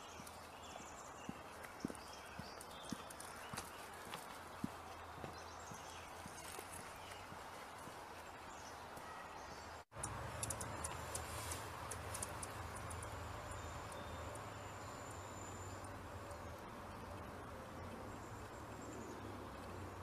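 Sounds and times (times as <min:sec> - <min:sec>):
sharp high ticks: 0:09.9 - 0:14.5.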